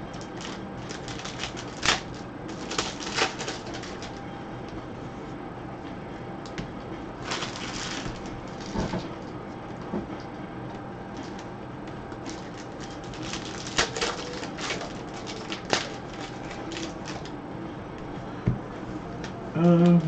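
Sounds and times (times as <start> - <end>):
cards rustling and clicking: 0.1 - 4.2, 12.2 - 17.4.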